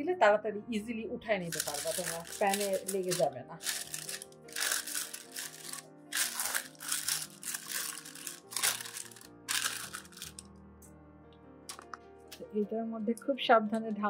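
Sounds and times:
background music: 0:00.0 - 0:14.0
parchment paper crinkling: 0:01.5 - 0:10.4.

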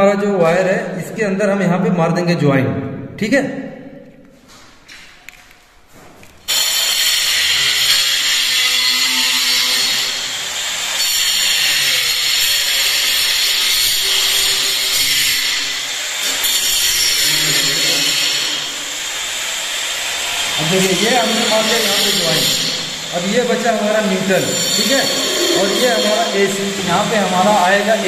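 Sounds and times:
loud hissing machine noise: 0:06.5 - 0:28.0.

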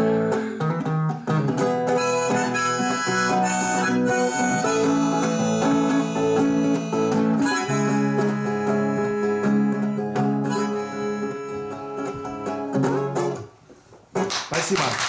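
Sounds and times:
harmonica melody: 0:00.0 - 0:13.6
strummed acoustic guitar: 0:00.0 - 0:13.6.

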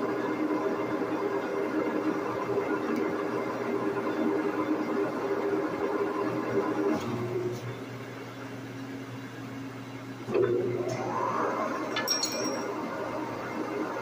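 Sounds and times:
boring mill humming: 0:10.3 - 0:14.0
sharp metal clinks: 0:12.0 - 0:12.7.

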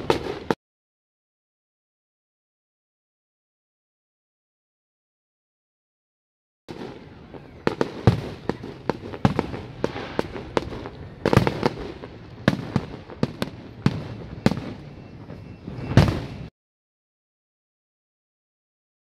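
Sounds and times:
fireworks bangs: 0:00.0 - 0:00.6, 0:06.7 - 0:16.5
fireworks crackle and rumble: 0:00.0 - 0:00.6, 0:06.7 - 0:16.5.

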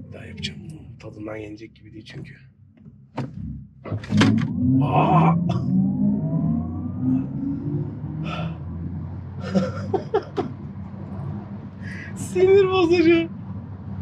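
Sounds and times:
low road rumble: 0:00.0 - 0:14.0
person gasping: 0:08.2 - 0:08.6.

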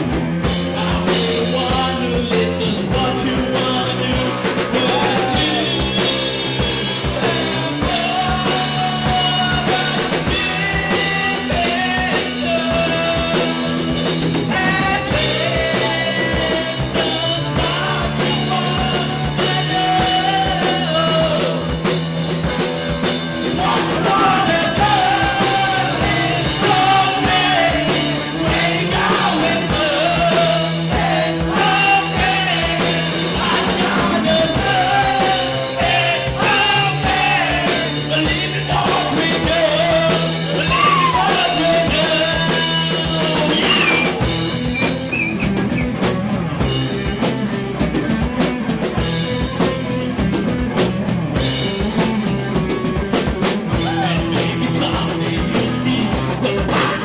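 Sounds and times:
bass guitar: 0:00.0 - 0:57.0
drums: 0:00.0 - 0:57.0
electric guitar: 0:00.0 - 0:57.0
person singing into a microphone: 0:00.6 - 0:21.8, 0:23.5 - 0:44.3, 0:53.7 - 0:57.0.

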